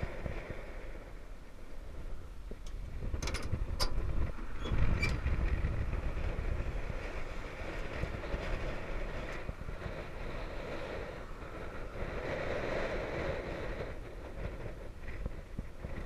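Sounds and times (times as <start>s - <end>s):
steady low rumble: 0.0s - 16.0s
metallic clicks and knocks: 2.6s - 4.0s.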